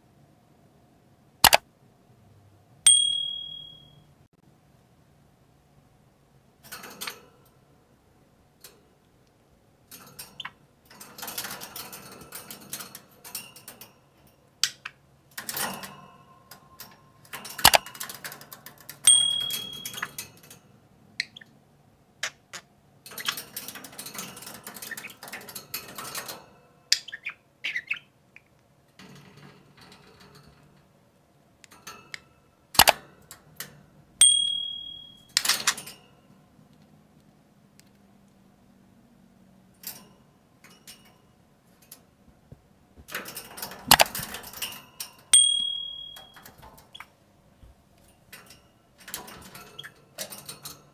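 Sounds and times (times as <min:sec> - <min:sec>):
sharp clicks: 0:01.4 - 0:01.6, 0:17.6 - 0:17.8, 0:32.8 - 0:33.0, 0:43.9 - 0:44.2.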